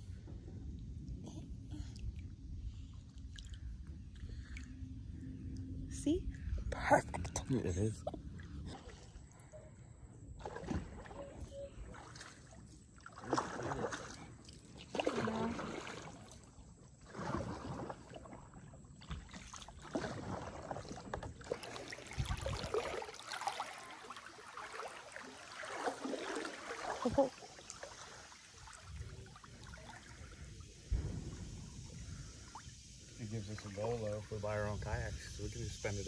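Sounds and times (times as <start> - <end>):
kayak paddle splashing in water: 10.4 - 31.8.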